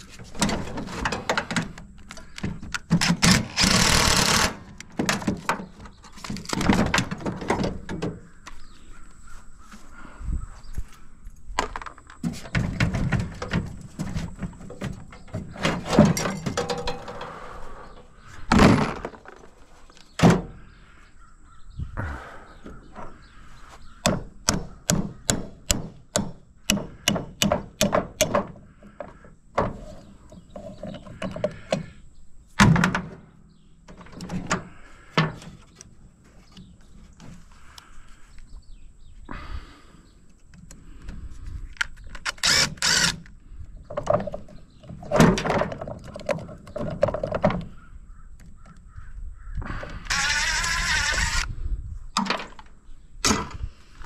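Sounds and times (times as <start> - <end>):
metal parts clanking and knocking: 0.1 - 8.2, 11.6 - 19.6, 43.9 - 47.7, 52.2 - 53.6.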